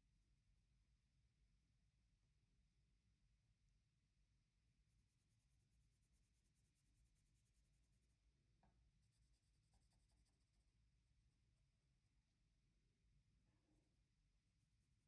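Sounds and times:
pencil scratching on paper: 4.7 - 8.3, 8.9 - 11.0, 13.8 - 15.0.

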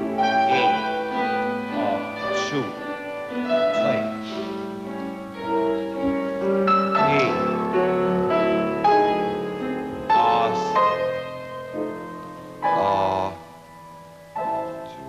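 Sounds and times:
piano playing chords and melody: 0.0 - 15.0.

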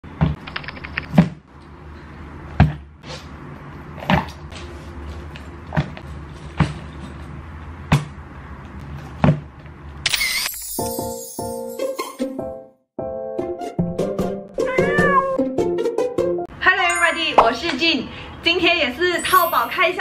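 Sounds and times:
music: 10.8 - 17.1.

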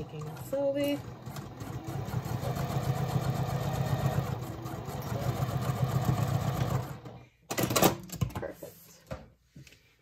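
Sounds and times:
sewing machine running: 0.0 - 7.7.

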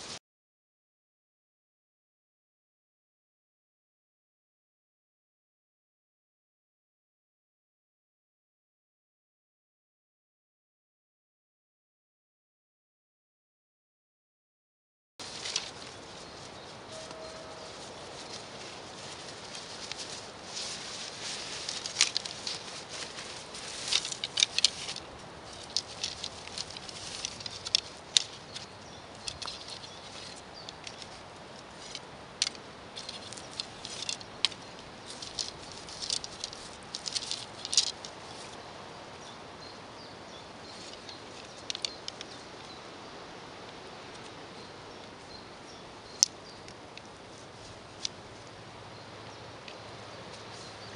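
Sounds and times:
fabric bag rustling: 15.2 - 28.0
wooden dowels clicking together: 21.6 - 38.2, 40.9 - 42.3.

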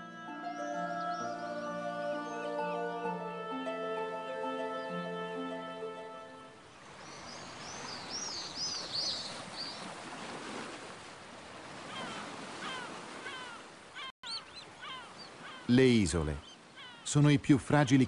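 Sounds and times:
wind: 0.0 - 18.0
sea surf: 5.2 - 17.8
small birds chirping: 6.8 - 10.4, 12.0 - 18.0.

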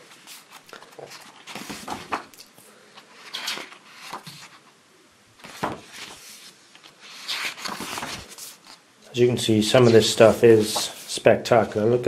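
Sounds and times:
book pages turning: 0.0 - 4.7, 5.4 - 8.8.

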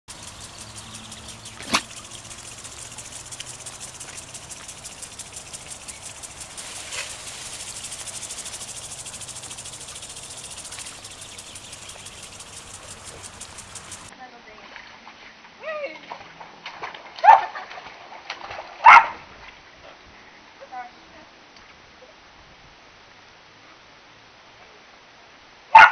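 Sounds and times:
insects trilling: 0.0 - 14.1
low hum: 0.0 - 14.1
sharp click: 0.4 - 14.1.

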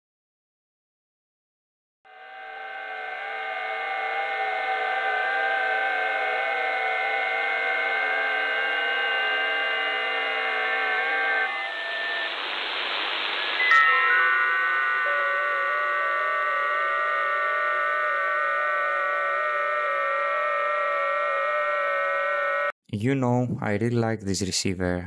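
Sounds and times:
digital radio signal tones: 2.1 - 22.7
radio band hiss: 7.5 - 13.7.

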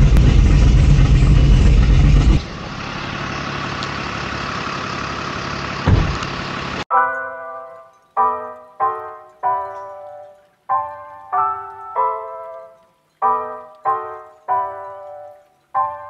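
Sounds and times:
loping car engine idle: 0.0 - 6.8
truck engine idling in cab: 0.0 - 6.8
thump: 5.9 - 6.3
piano music: 6.9 - 16.0.

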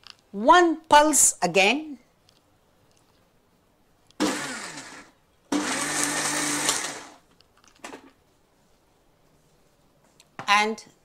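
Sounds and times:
mixer grinder motor: 4.2 - 7.2.

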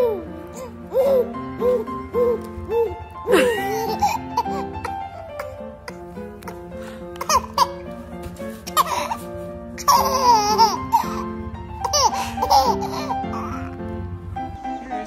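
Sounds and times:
baby giggling and squealing: 0.0 - 5.6, 7.2 - 8.0, 8.6 - 13.8
background music: 0.0 - 15.0.

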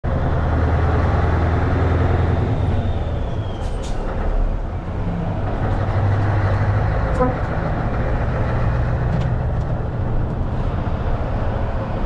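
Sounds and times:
diesel truck engine pulling: 0.0 - 12.0
faint falling whistle: 2.4 - 4.0.

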